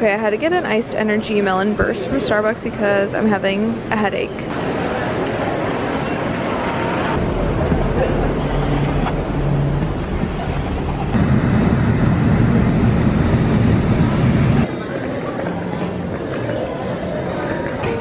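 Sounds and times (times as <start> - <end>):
bus engine and road rumble: 4.5 - 14.7.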